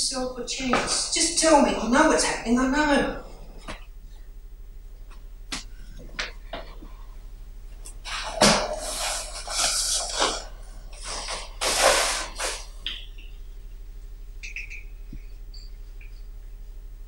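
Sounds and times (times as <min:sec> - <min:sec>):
steady low hum: 0:00.0 - 0:17.0
hissing rustling noise bursts: 0:07.9 - 0:12.8.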